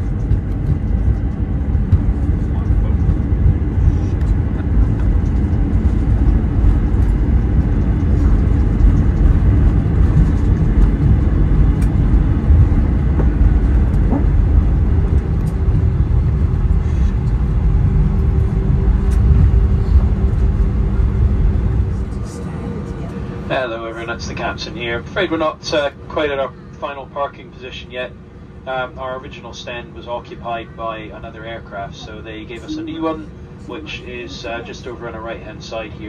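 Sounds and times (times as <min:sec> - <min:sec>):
idling jet engines rumble: 0:00.0 - 0:36.0
steady hum: 0:00.0 - 0:36.0.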